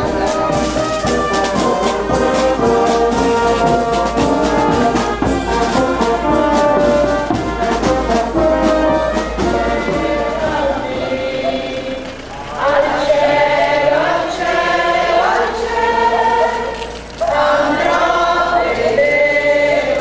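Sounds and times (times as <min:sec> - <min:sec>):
marching brass band playing: 0:00.0 - 0:20.0.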